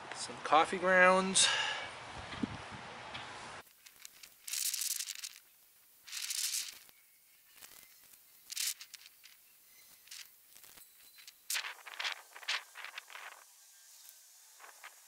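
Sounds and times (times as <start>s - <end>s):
plastic pot crinkling: 3.6s - 13.5s
dry straw rustling: 3.6s - 15.0s
small clicks: 3.7s - 5.5s, 6.1s - 13.4s.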